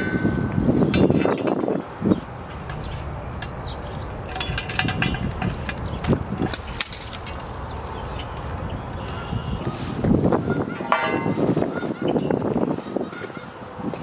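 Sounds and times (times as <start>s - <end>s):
steady low rumble: 0.0s - 10.6s
metallic clicks and clinks: 4.2s - 8.5s.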